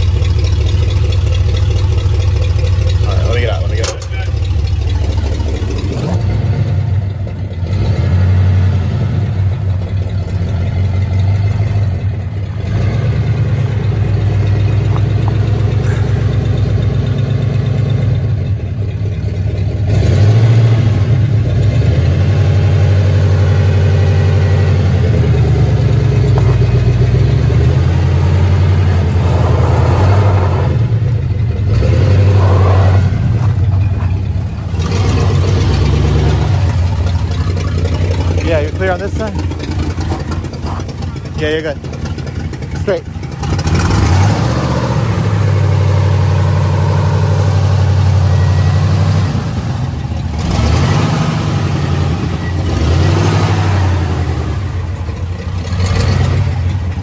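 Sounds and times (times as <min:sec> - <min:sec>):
truck engine revving: 0:00.0 - 0:57.0.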